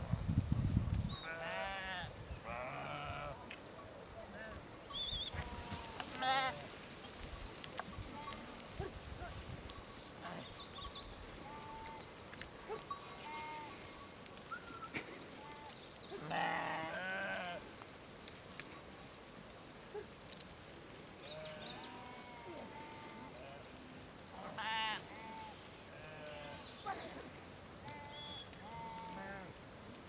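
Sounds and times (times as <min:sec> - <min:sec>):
sheep bleating: 0:01.2 - 0:03.4, 0:05.4 - 0:06.8, 0:13.1 - 0:13.9, 0:15.4 - 0:17.6, 0:21.2 - 0:23.8, 0:24.4 - 0:27.1, 0:27.8 - 0:29.5.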